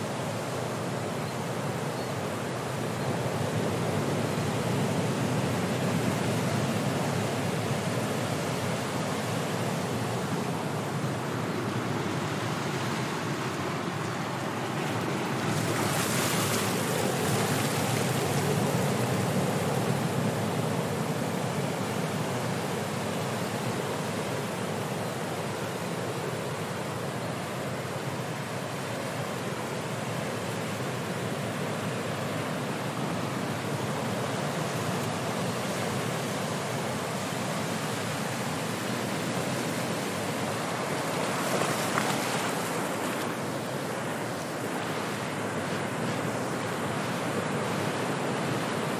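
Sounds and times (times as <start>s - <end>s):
ocean surf rushing: 0.0s - 48.9s
wave breaking: 40.6s - 45.2s.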